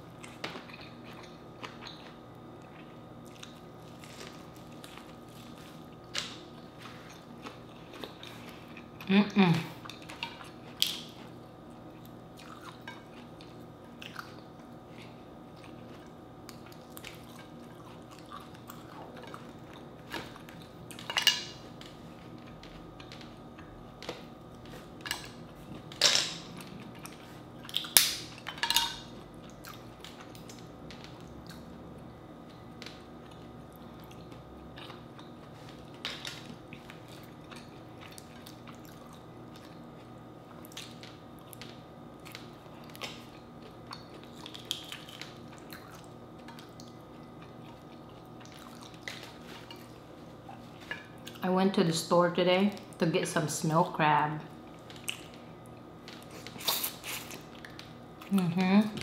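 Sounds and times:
soft chewing and lip smacks: 9.8s - 21.0s, 29.3s - 31.8s, 32.5s - 51.4s, 54.7s - 58.6s.

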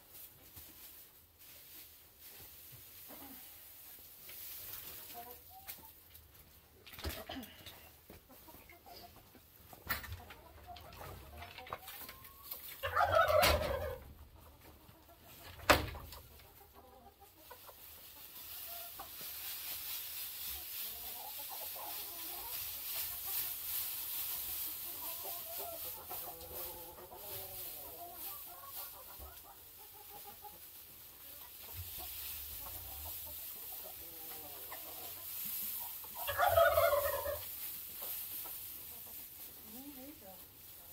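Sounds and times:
straw rustling and crackling: 0.0s - 7.2s, 17.4s - 40.9s
hens clucking: 0.7s - 40.9s.

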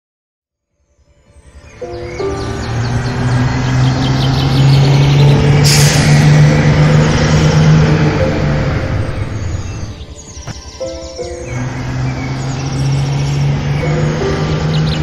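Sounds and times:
vehicle engine humming: 1.6s - 15.0s
short loud hiss: 5.6s - 6.4s.

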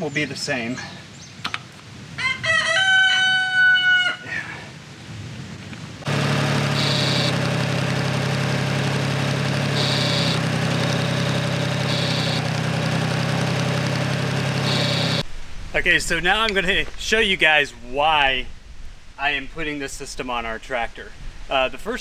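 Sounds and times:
rooster crowing: 2.2s - 4.6s
tractor engine running: 6.0s - 15.3s.

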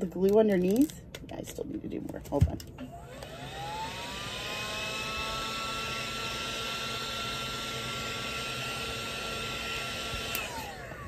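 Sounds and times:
heat gun fan whining: 2.4s - 11.0s.

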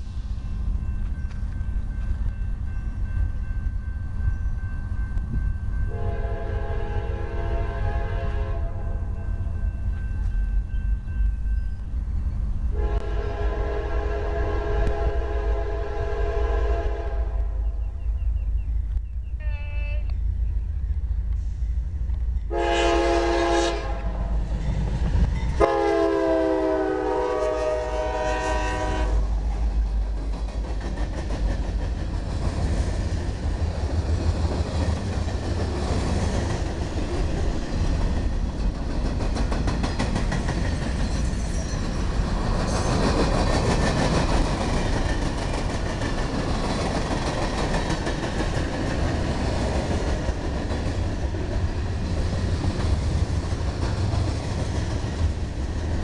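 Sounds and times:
train cars rumbling on rails: 0.0s - 56.0s
train air horn blasts: 5.9s - 9.2s, 12.7s - 17.8s, 22.5s - 24.3s, 25.6s - 29.4s.

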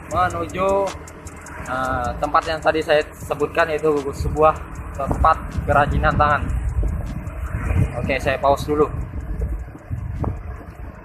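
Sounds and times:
vehicle rumble on road: 0.0s - 11.0s
wind buffeting microphone: 0.0s - 11.0s.

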